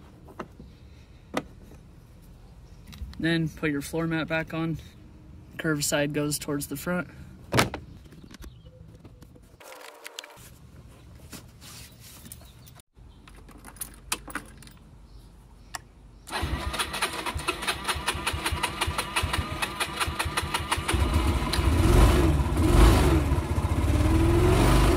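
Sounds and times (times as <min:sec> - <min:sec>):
scooter engine starting and running: 0:16.3 - 0:24.9.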